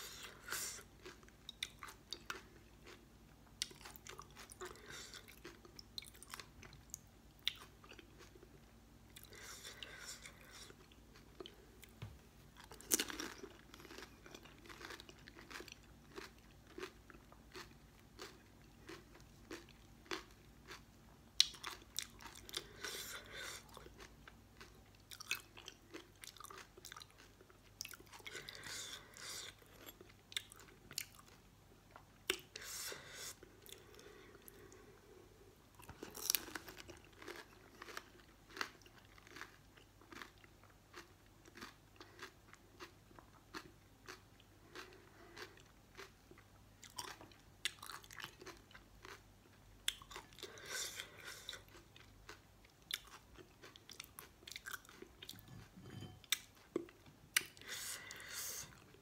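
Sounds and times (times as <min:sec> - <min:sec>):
crunching of fried snacks: 0:12.6 - 0:31.4, 0:35.8 - 0:55.4.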